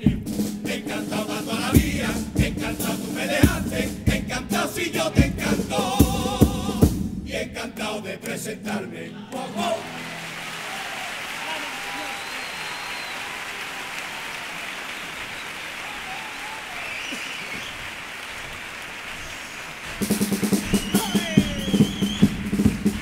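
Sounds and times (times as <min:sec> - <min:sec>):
drums beating a rhythm: 0:00.0 - 0:07.6, 0:19.8 - 0:23.0
audience applauding: 0:09.4 - 0:23.0.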